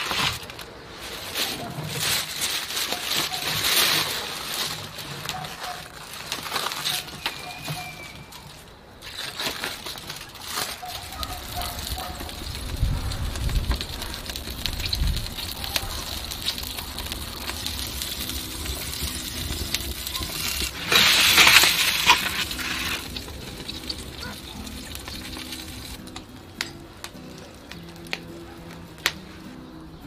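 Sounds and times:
wood fire crackling: 0.0s - 30.0s
fat sizzling: 9.0s - 28.4s.

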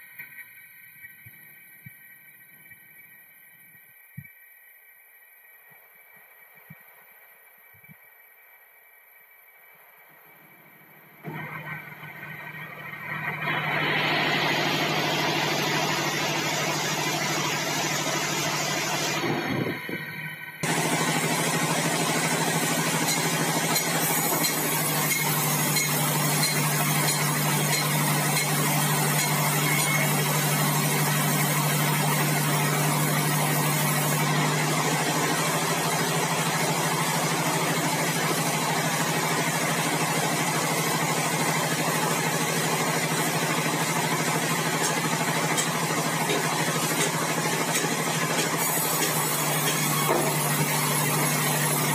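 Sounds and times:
band saw machinery humming: 11.2s - 51.9s.

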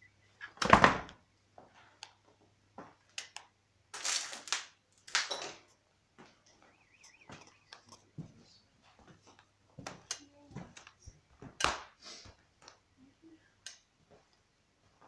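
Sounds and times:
footsteps crunching on grit: 6.2s - 11.6s.

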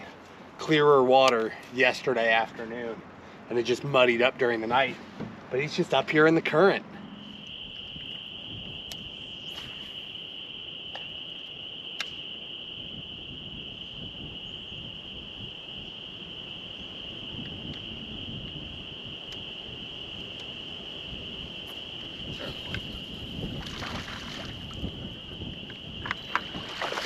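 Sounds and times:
faint wind: 0.0s - 27.0s
high-pitched insect drone: 5.5s - 27.0s
water noise: 21.2s - 27.0s.

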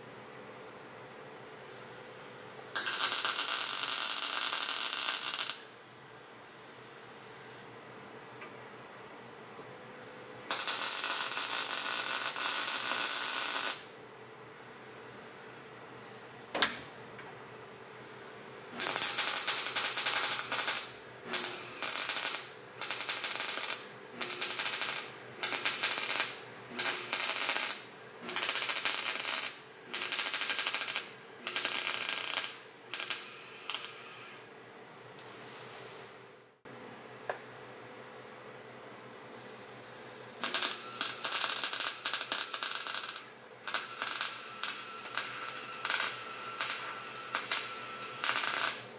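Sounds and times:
welding arc crackling: 2.7s - 5.7s, 10.5s - 14.0s, 18.7s - 34.4s, 40.4s - 48.9s.

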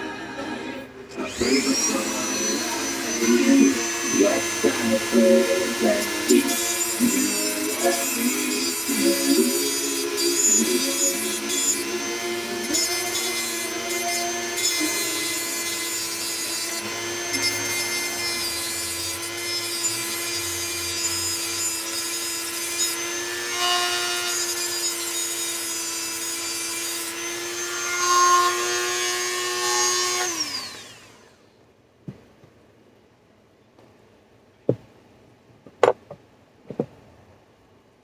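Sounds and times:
rotary tool grinding a blade: 1.2s - 31.4s.

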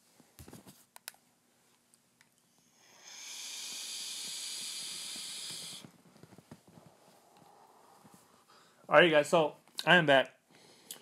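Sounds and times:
vape coil sizzling hiss: 2.6s - 5.9s.

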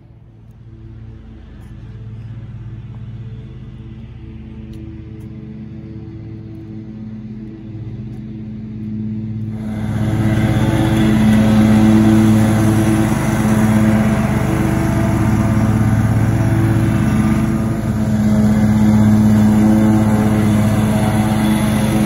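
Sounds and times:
lawn mower engine running: 9.1s - 22.0s.

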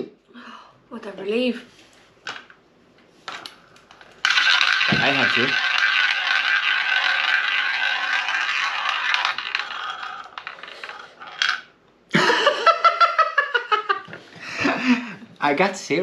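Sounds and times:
ball rolling on roulette wheel: 3.3s - 11.8s.

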